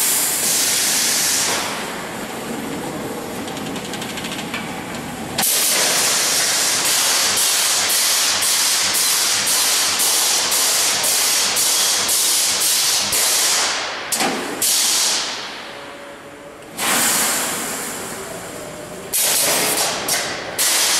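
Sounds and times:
welding machine pulsing hiss: 0.0 - 2.1, 5.4 - 13.9, 14.6 - 15.4, 16.8 - 20.9.

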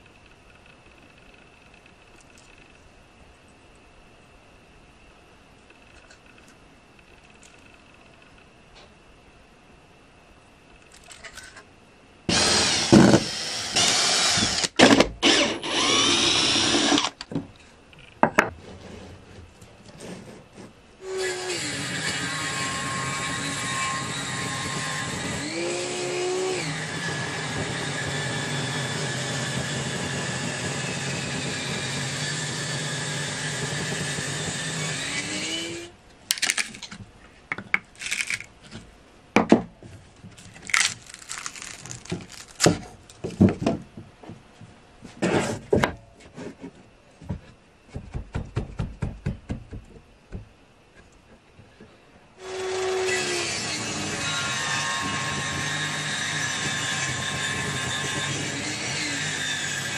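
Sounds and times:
circular saw cutting log: 12.3 - 17.2, 21.0 - 35.9, 52.4 - 59.9
wood knocking and cracking: 40.7 - 44.0.

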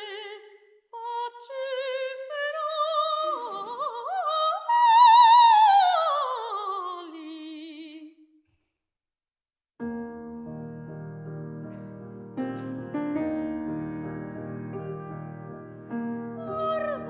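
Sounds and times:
soprano singing with vibrato: 0.0 - 8.2, 16.4 - 17.0
soft piano chords: 9.8 - 17.0.

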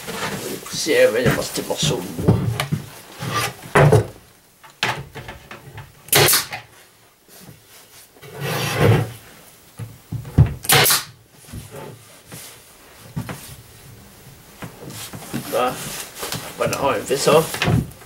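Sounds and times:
box scraping on table: 3.1 - 3.8, 8.2 - 9.2.

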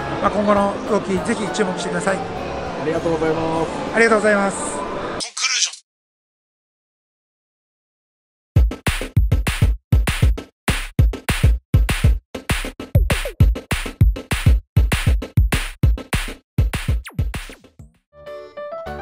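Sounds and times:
electronic music with drum-machine beat: 8.6 - 17.8
light keyboard tune: 18.2 - 19.0.

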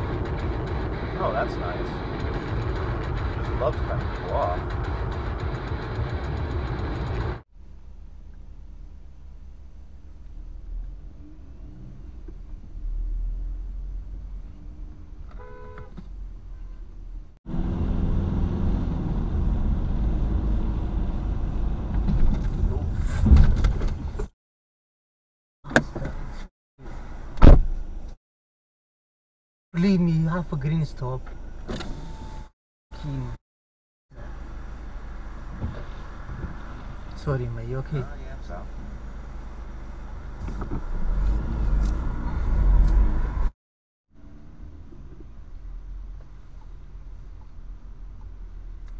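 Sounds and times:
car driving on wet road: 0.0 - 7.4
car engine and tyre noise: 0.0 - 24.3, 29.8 - 33.4, 34.1 - 43.5, 44.2 - 48.9
car horn toot: 15.3 - 16.0.

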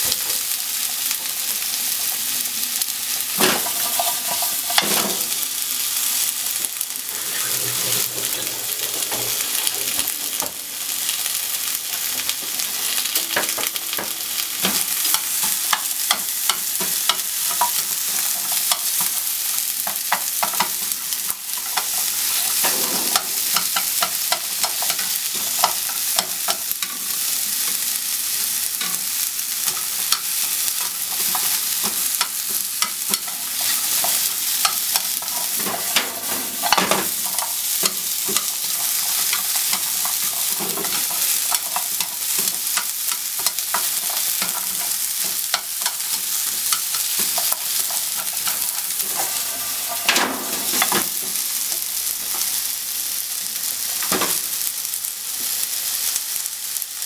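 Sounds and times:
onions sizzling in a frying pan: 0.0 - 57.0
chopsticks tapping a pan: 3.4 - 5.7, 12.3 - 27.8, 28.4 - 52.5.

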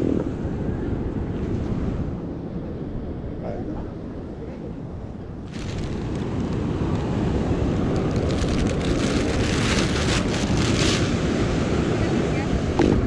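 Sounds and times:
wind buffeting microphone: 0.0 - 13.0
plastic bag crinkling: 5.5 - 7.1, 7.8 - 11.2.

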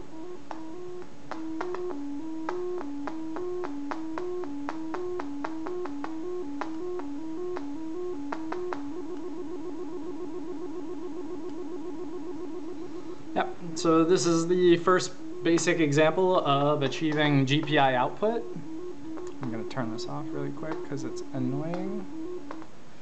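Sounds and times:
oscillator tone stepping through notes: 0.0 - 22.8
click at note change: 0.5 - 7.7, 19.2 - 22.7.

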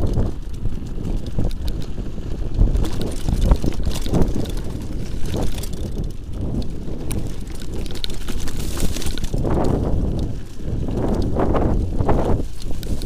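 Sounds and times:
bike rattling over bumps: 0.0 - 13.0
bike tyres rolling on dirt: 0.0 - 13.0
wind noise on microphone: 0.0 - 13.0.

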